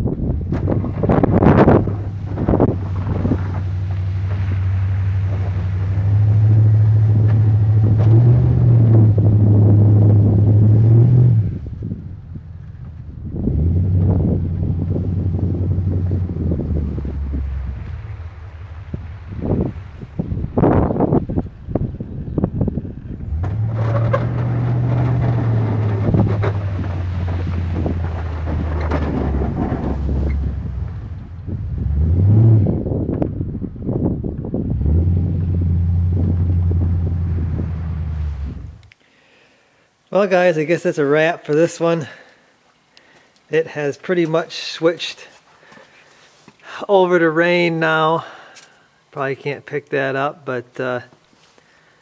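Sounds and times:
wind buffeting microphone: 0.0 - 38.9
truck engine drone: 0.4 - 19.9, 22.7 - 39.0.

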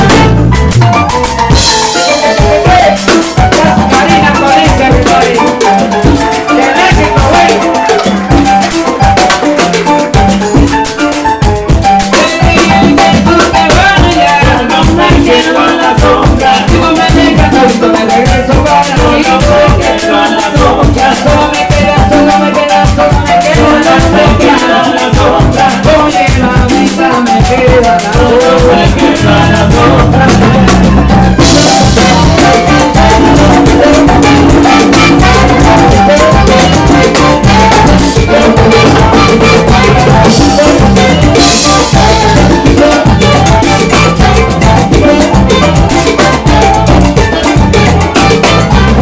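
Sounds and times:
electric bass: 0.0 - 49.0
latin percussion: 0.0 - 49.0
salsa band playing: 0.0 - 49.0
woman singing: 1.9 - 8.4, 12.1 - 46.6.

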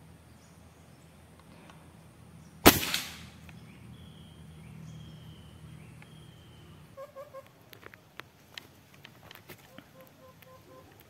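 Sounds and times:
rifle shot crack: 2.6 - 3.5.

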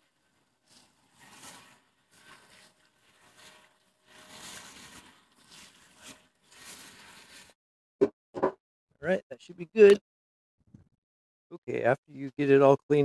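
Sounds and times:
water spray hissing on metal plate: 0.0 - 7.6.

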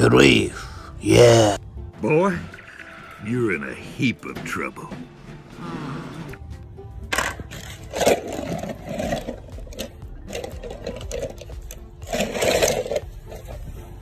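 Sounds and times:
toy cars knocking and scraping in basin: 7.1 - 13.8.

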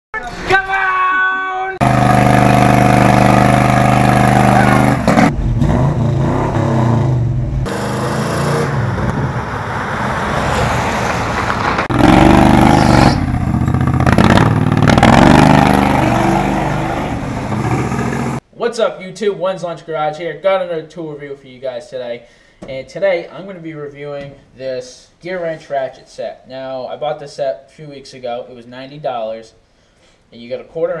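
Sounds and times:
go-kart engine running: 1.8 - 5.5, 11.8 - 18.4
pickup truck engine: 1.8 - 18.4.

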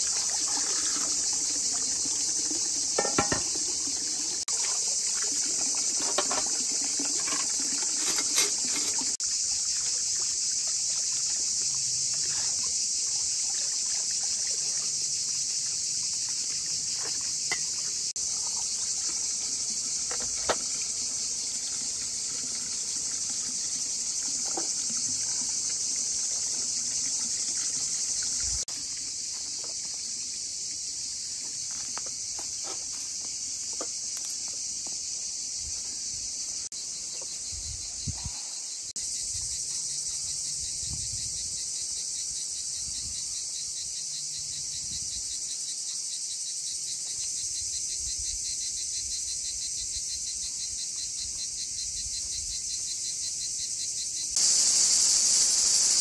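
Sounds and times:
insects chirring: 0.0 - 56.0
footsteps on dirt path: 31.4 - 35.1.

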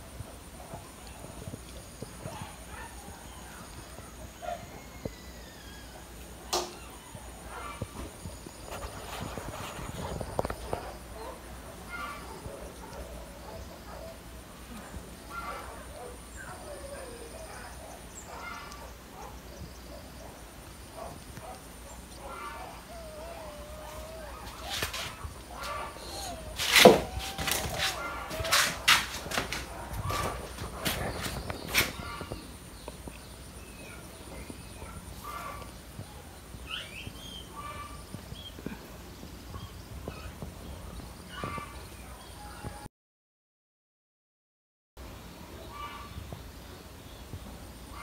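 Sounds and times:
puppies squeaking and whining: 4.9 - 7.9, 22.1 - 32.3, 36.7 - 37.8
puppy squeaking: 22.6 - 28.7.

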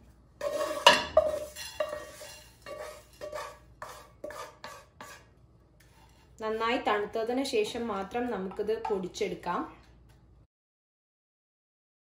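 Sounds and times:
wooden spatula scraping frying pan: 0.4 - 6.9.

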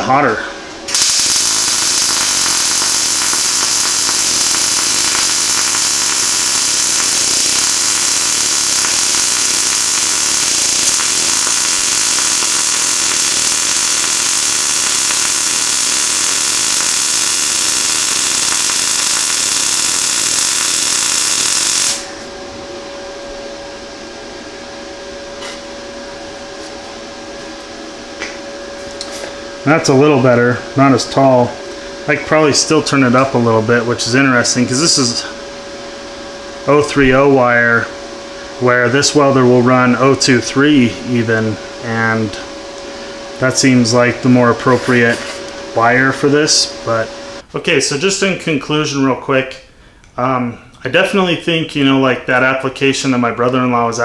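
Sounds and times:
welding arc noise: 0.0 - 22.4, 27.6 - 47.5.

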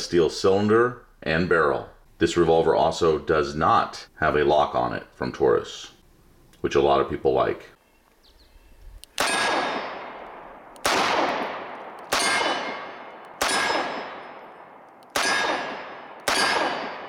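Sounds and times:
revolver shots echoing: 9.2 - 17.0.

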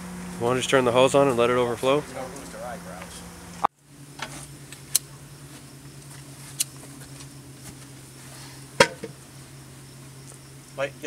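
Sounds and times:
steady low hum: 0.0 - 11.0
sharp knock: 8.8 - 9.2.

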